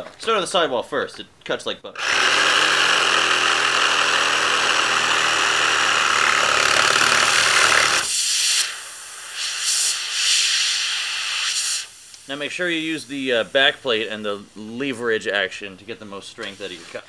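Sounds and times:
reciprocating saw cutting rubber: 2.0s - 8.8s
air hissing from tyre: 8.0s - 12.3s.

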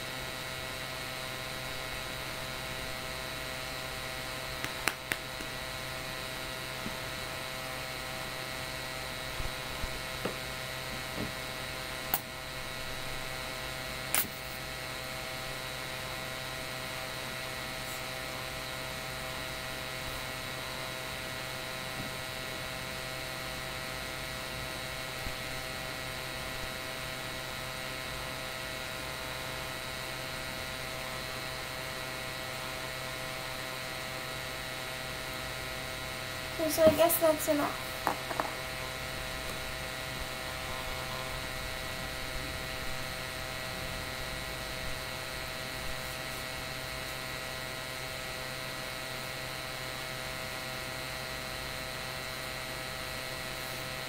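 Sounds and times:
steady electrical hum: 0.0s - 54.0s
sharp clicks and taps: 4.6s - 5.5s, 38.0s - 38.6s.

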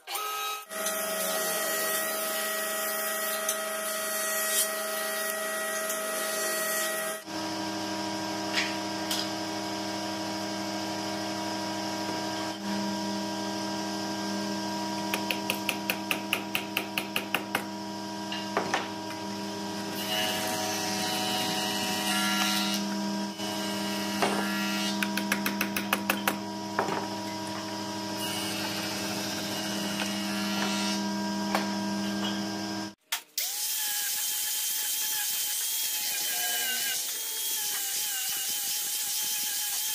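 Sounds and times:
cordless drill running: 26.4s - 34.0s.

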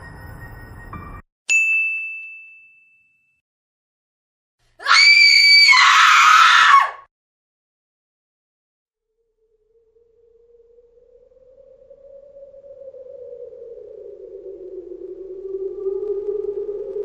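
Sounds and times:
high ding: 0.0s - 3.4s
high-pitched shriek: 9.1s - 17.0s.

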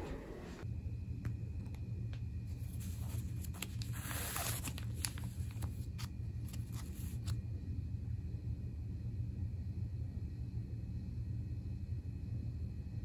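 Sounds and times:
steady low hum: 0.0s - 13.0s
cellophane crinkling: 2.7s - 7.3s.

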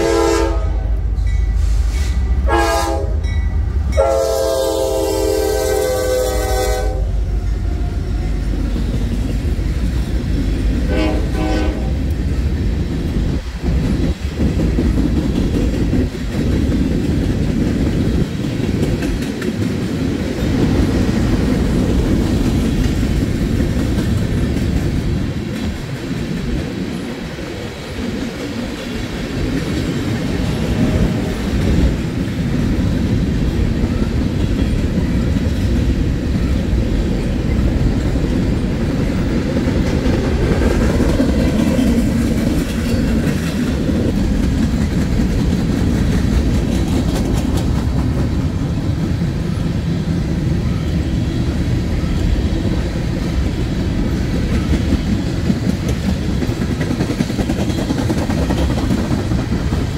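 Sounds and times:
train horn: 0.0s - 8.5s, 10.8s - 12.1s
freight train rumbling: 0.0s - 59.9s
wheels clacking over rail joints: 12.0s - 51.0s, 51.6s - 59.9s.

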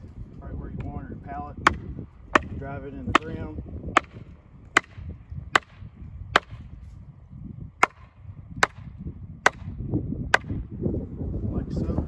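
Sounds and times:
hammer knocking on wooden pole: 1.6s - 4.2s, 4.8s - 6.6s, 7.8s - 9.7s, 10.3s - 10.6s.

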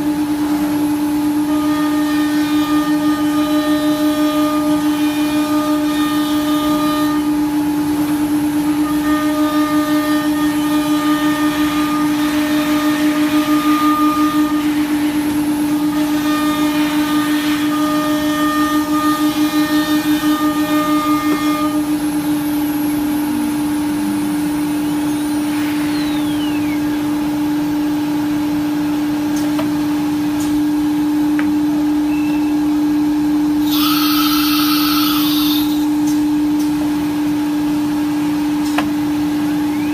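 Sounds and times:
sharper higher whine: 19.7s - 27.3s, 33.6s - 36.1s
router spindle whine: 33.6s - 36.0s.

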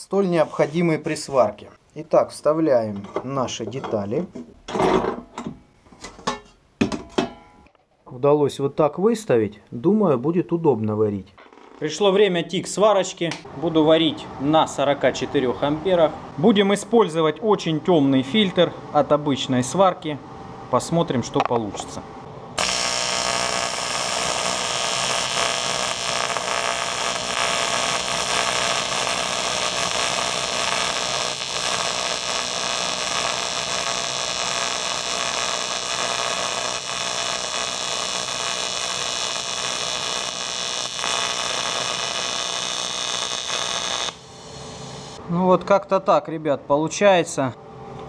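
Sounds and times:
welding arc buzzing hiss: 22.6s - 45.2s.

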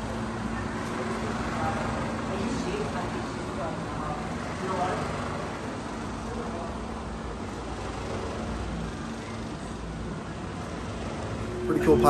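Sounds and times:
low steady hum: 8.8s - 12.0s.

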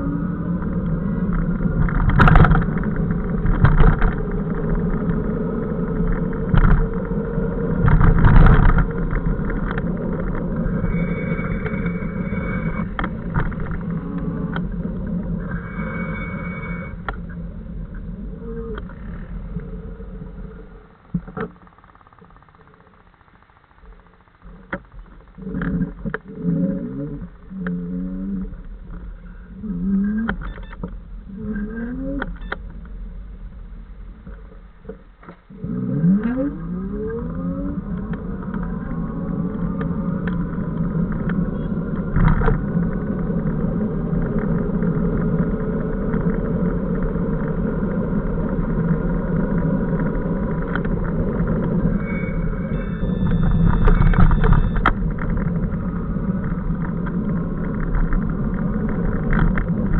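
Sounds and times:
wind noise: 0.0s - 22.0s, 24.6s - 59.9s
electric bicycle motor whining: 0.0s - 26.4s, 35.5s - 59.9s
road noise: 0.0s - 59.9s.

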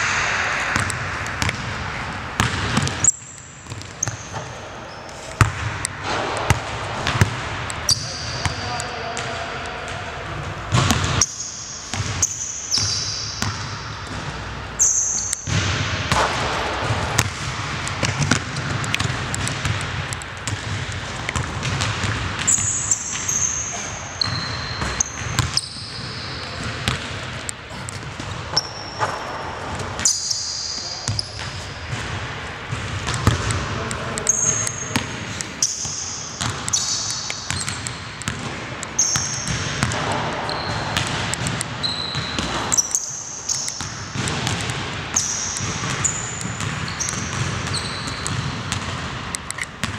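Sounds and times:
sneakers squeaking on court: 0.0s - 49.9s
basketball bouncing on hardwood floor: 0.7s - 1.8s, 2.4s - 4.5s, 5.4s - 8.6s, 10.7s - 11.3s, 11.9s - 14.3s, 15.5s - 23.4s, 31.1s - 42.8s, 43.5s - 49.2s.

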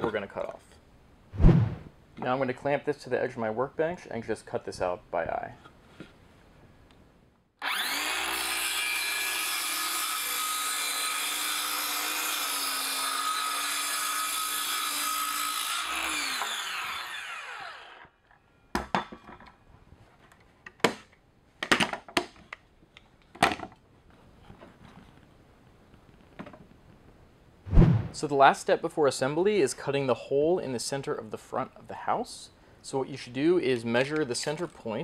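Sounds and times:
circular saw cutting wood: 7.6s - 18.1s.

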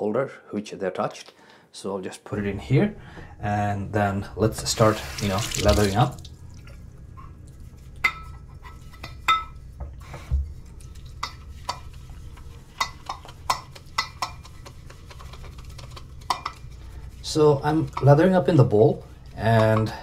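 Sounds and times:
brush clinking metal bowl: 7.8s - 9.8s, 10.5s - 20.0s.

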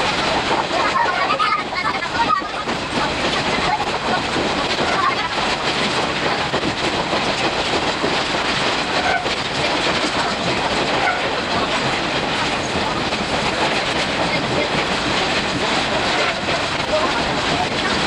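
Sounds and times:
train wheels clacking on rails: 0.0s - 18.0s.

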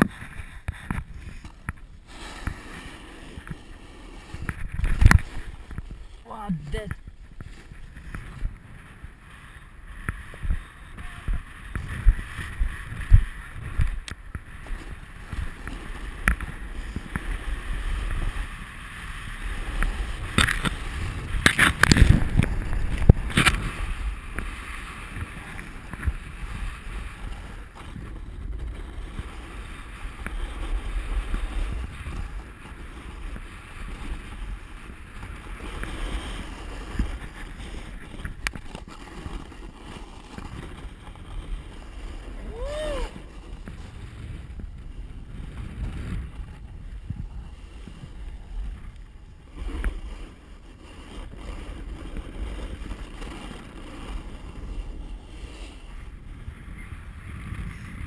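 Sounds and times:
snowboard scraping on icy snow: 0.0s - 58.0s
wind buffeting microphone: 0.0s - 58.0s.

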